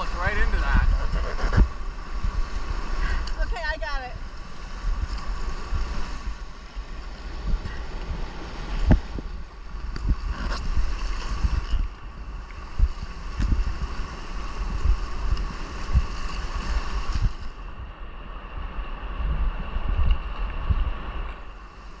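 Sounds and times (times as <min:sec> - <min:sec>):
whitewater rushing: 0:00.0 - 0:17.5
wind buffeting microphone: 0:00.0 - 0:22.0.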